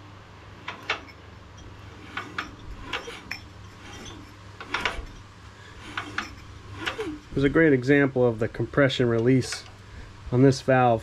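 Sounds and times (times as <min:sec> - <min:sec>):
engine valve train clicking: 0:09.0 - 0:09.9.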